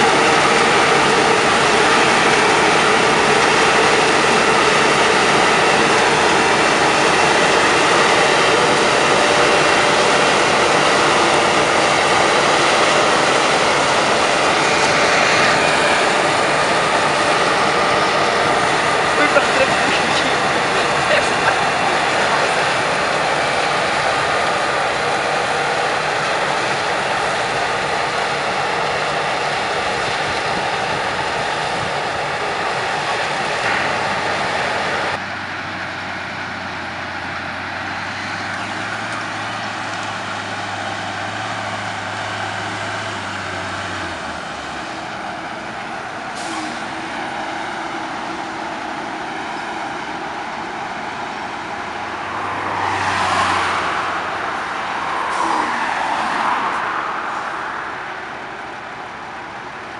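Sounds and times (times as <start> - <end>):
combine harvester running: 0.0 - 59.9
distant tractor engines: 0.0 - 59.9
car driving past: 51.0 - 58.6.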